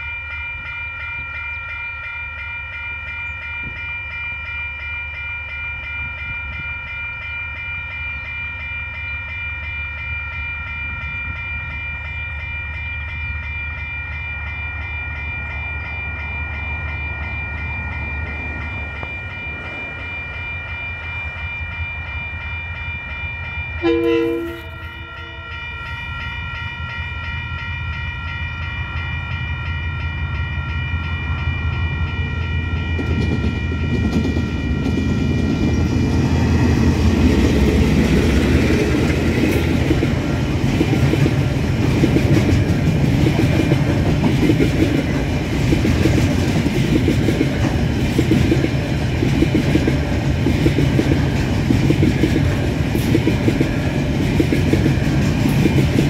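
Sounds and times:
steady high-pitched tone: 0:00.0 - 0:56.0
train wheels clattering on rails: 0:32.6 - 0:56.0.

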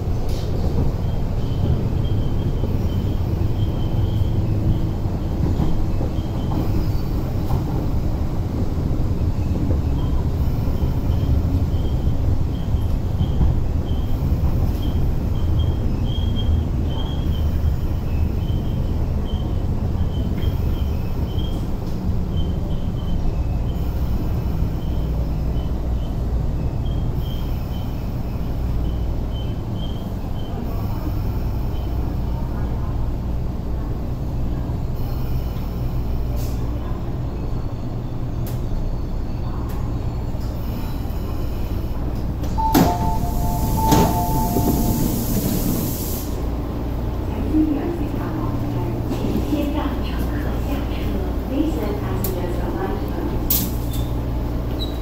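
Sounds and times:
electric train rumbling to a stop: 0:00.0 - 0:55.0
two-tone door beeping: 0:42.5 - 0:46.0
sharp door clunk: 0:42.6 - 0:45.0.

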